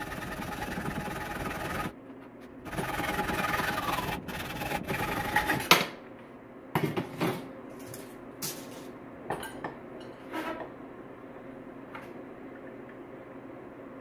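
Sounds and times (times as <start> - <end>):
hacksaw cutting metal tube: 0.0 - 1.9, 2.7 - 5.7.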